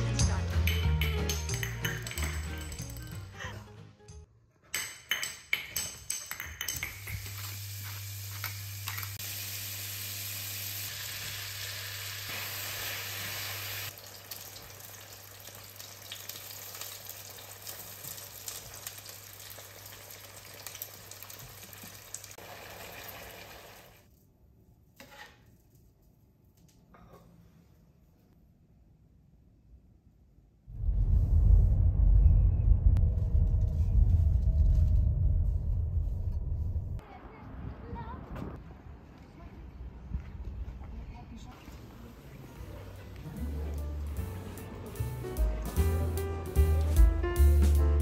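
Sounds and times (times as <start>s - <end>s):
spatula clacks: 0.6s - 3.2s, 4.8s - 7.6s
food sizzling in a frying pan: 7.2s - 24.0s.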